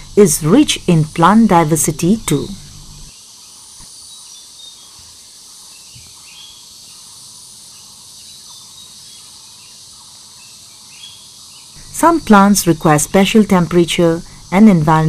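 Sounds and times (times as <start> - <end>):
high insect drone: 0.0 - 15.0
faint bird chirps: 2.4 - 13.0.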